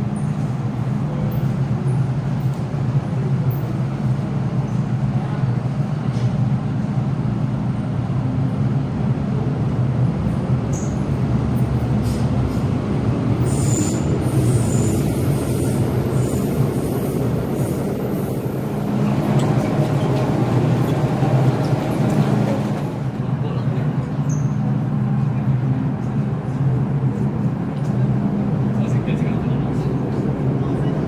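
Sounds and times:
train rumbling: 0.0s - 31.0s.

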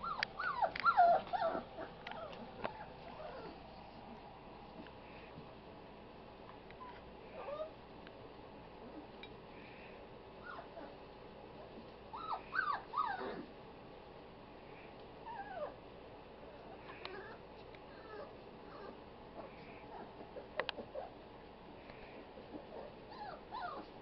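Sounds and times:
puppies whimpering and yipping: 0.0s - 3.7s, 10.4s - 11.0s, 12.1s - 13.5s, 15.2s - 15.8s, 16.7s - 21.2s, 22.4s - 24.0s.

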